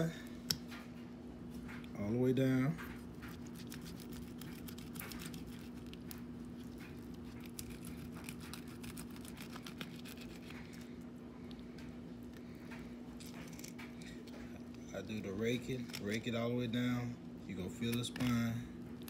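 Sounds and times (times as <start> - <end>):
steady low hum: 0.0 - 19.0
knife scraping over fish bones: 3.3 - 10.8.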